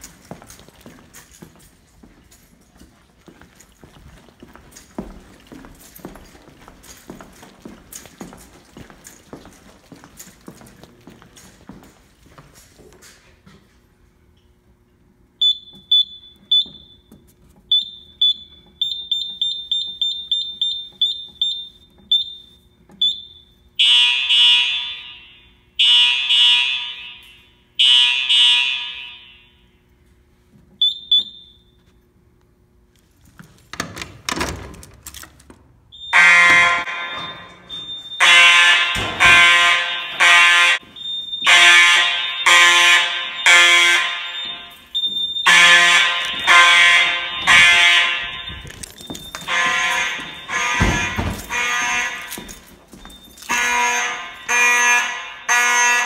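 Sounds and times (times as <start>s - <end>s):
fire alarm horn blasts: 15.4s - 30.0s, 30.8s - 31.8s, 35.9s - 56.0s
keypad beeping: 36.9s - 38.4s.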